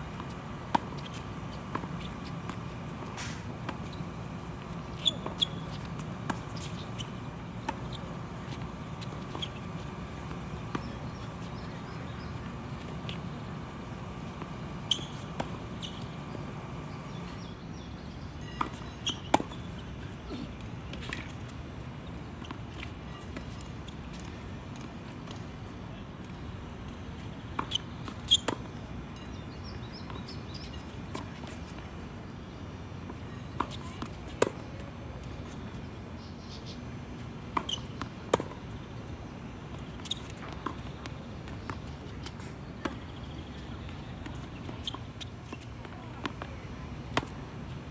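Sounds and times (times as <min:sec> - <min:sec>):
steady background noise: 0:00.0 - 0:47.9
tennis balls struck by rackets: 0:00.1 - 0:17.5, 0:37.4 - 0:38.8.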